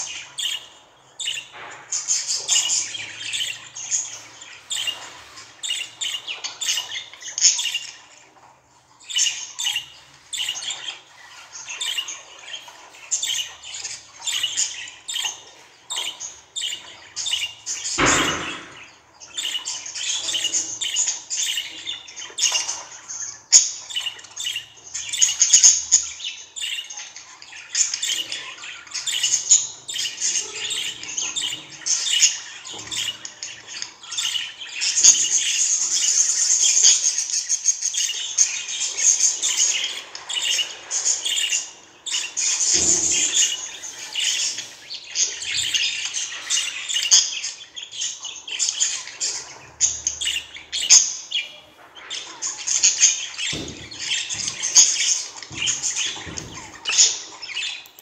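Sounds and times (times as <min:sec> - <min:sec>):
budgerigar chirping and warbling: 0:27.8 - 0:37.1.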